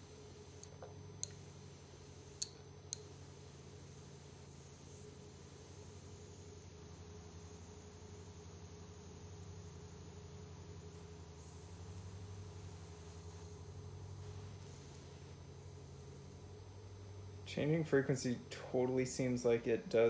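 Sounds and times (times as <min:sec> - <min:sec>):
high-pitched whine: 0:00.0 - 0:14.0.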